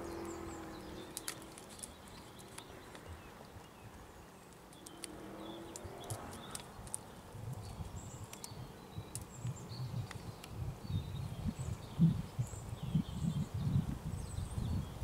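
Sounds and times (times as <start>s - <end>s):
cat claws scraping on bark: 0.2s - 3.1s, 4.4s - 10.6s.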